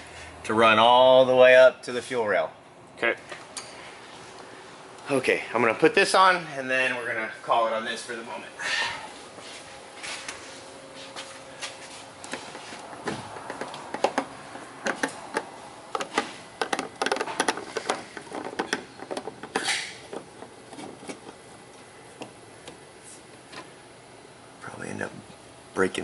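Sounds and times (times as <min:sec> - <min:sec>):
brushing rustle: 0:09.1 - 0:12.9.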